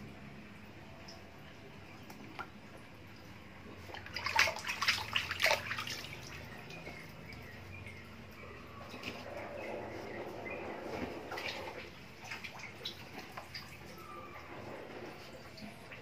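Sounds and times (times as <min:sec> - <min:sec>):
otter splashing in water: 0:03.8 - 0:07.5.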